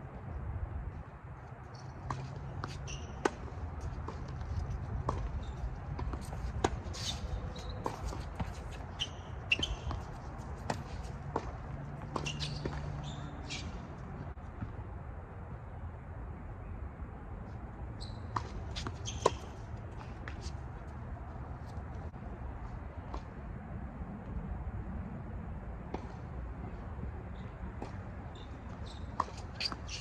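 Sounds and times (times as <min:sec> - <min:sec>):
tennis balls bouncing on court: 0:01.7 - 0:14.8, 0:18.0 - 0:22.2, 0:25.9 - 0:30.0.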